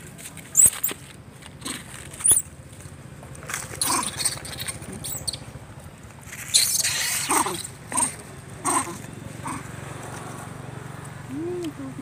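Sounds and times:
young monkey high calls: 3.8 - 5.4, 6.5 - 9.7.

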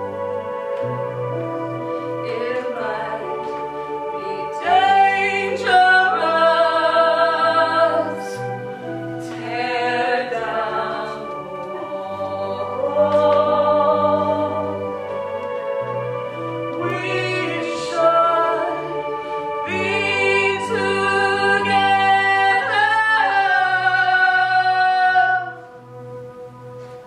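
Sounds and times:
accompaniment chords: 0.0 - 27.0
person singing: 16.7 - 25.6.

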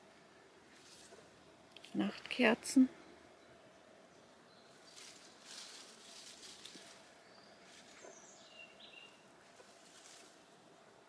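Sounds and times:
soft rustling: 0.7 - 2.5, 4.7 - 10.8.

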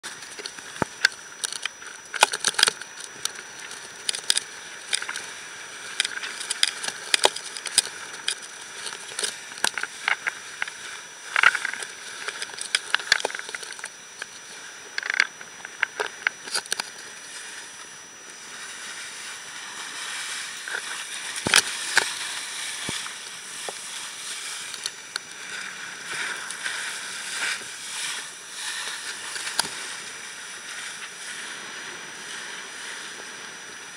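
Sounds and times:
water rushing along hull: 0.0 - 33.9
sharp crackles and slaps: 20.7 - 22.2.

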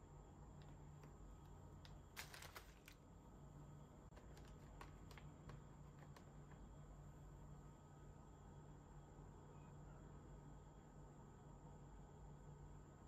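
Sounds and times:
plastic tray rustle: 2.1 - 3.0, 4.1 - 6.3.

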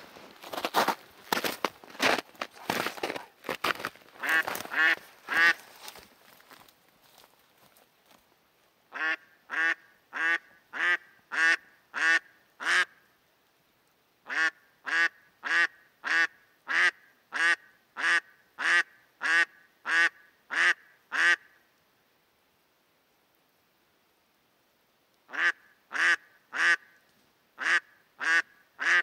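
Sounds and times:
duck quacking loudly: 4.2 - 5.6, 8.9 - 12.9, 14.3 - 21.5, 25.3 - 27.0, 27.6 - 29.0.

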